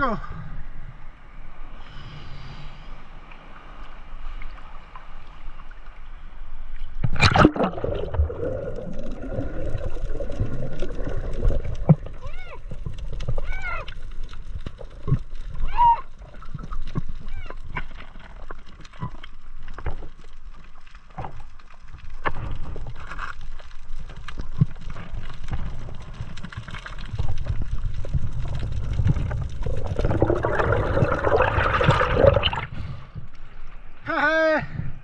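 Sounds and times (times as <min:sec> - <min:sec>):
rush of water: 0:07.0 - 0:19.1, 0:24.5 - 0:32.9
sea water washing around rocks: 0:07.0 - 0:33.3.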